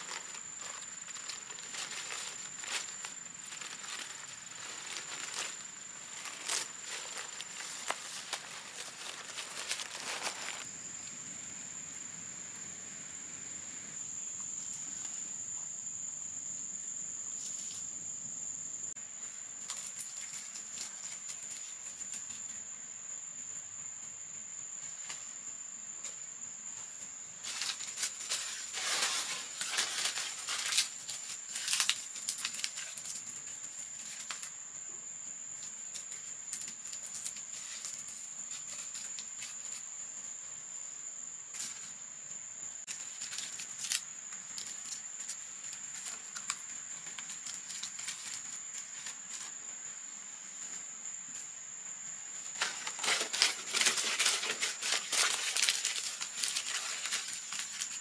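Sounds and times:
rustling and clicking: 0:00.0 - 0:10.6, 0:52.5 - 0:58.0.

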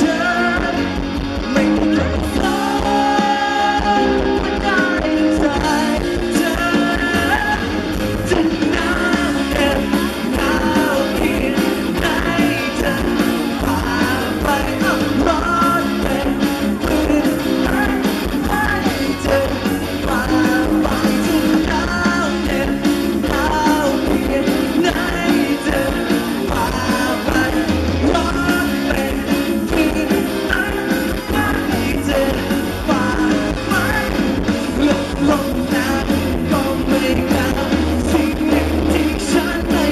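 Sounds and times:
drums: 0:00.0 - 0:39.9
electric guitar: 0:00.0 - 0:39.9
man singing: 0:00.0 - 0:39.9.

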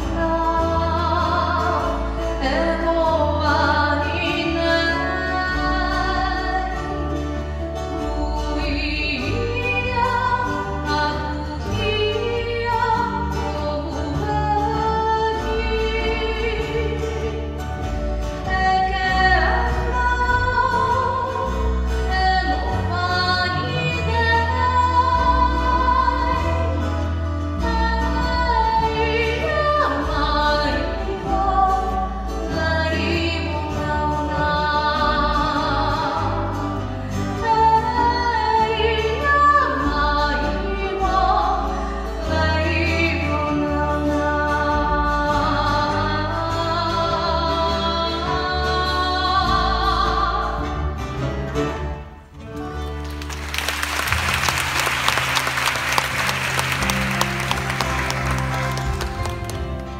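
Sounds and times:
woman singing into microphone: 0:00.0 - 0:17.6, 0:18.3 - 0:50.8
acoustic guitars: 0:00.0 - 0:59.9
bass line: 0:52.3 - 0:59.9
audience applauding: 0:52.8 - 0:59.9.

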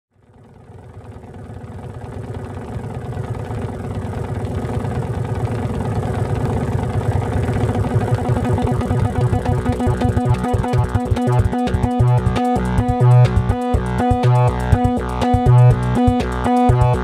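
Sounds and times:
buzzy synth drone: 0:06.1 - 0:17.0.

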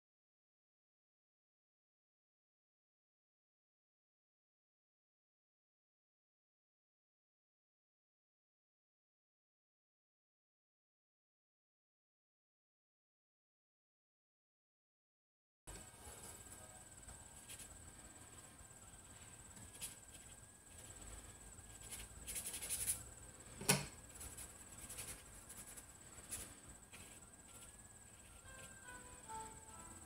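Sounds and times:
brush strokes on paper: 0:15.7 - 0:30.0
steady high-pitched trill: 0:24.0 - 0:30.0.

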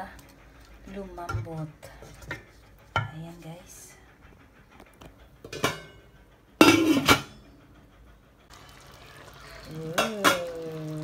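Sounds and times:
metal pot lid rattling: 0:06.6 - 0:07.3
sauce simmering hiss: 0:08.4 - 0:11.0.

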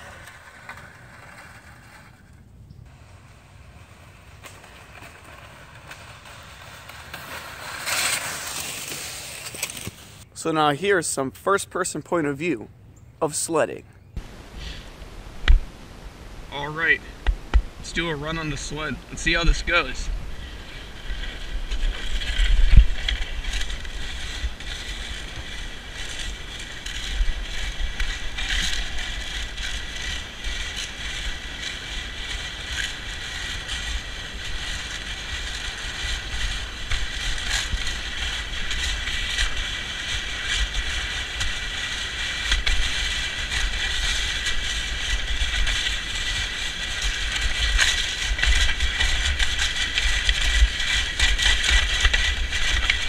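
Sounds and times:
sled runners scraping over ice: 0:00.0 - 0:10.5, 0:17.8 - 0:53.0
wind rumble on microphone: 0:14.2 - 0:53.0.

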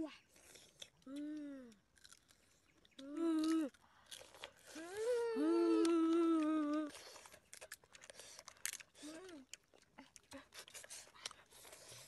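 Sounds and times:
crunching of crab shell: 0:00.4 - 0:05.2, 0:05.8 - 0:12.0
child humming: 0:03.0 - 0:03.7, 0:04.7 - 0:07.0.

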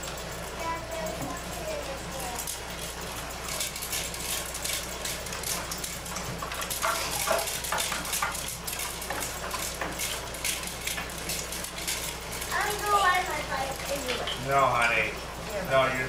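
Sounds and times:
small objects clattering and rustling: 0:03.6 - 0:12.5.

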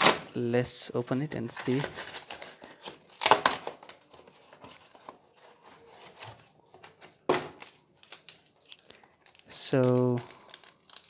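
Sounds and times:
cardboard rustling: 0:01.4 - 0:10.2.

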